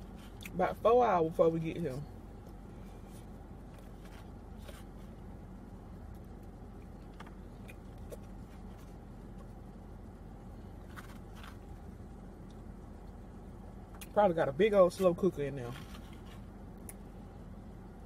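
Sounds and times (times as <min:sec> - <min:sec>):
soft chewing: 0:00.0 - 0:00.6, 0:02.1 - 0:14.2
low rumble inside car: 0:00.0 - 0:18.0.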